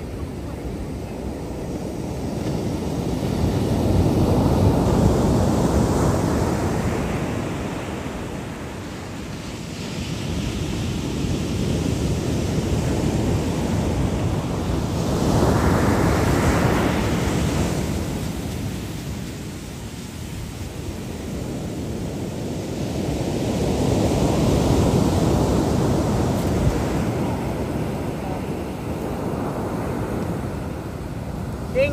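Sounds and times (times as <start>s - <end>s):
surf breaking on shore: 0.0s - 31.9s
wind on microphone: 0.0s - 31.9s.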